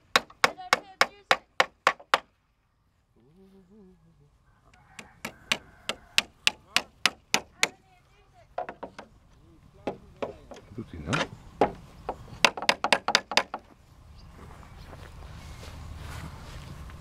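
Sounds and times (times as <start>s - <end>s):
hammer striking plywood: 0.0s - 2.3s, 5.0s - 7.8s, 8.6s - 9.1s, 9.8s - 13.7s.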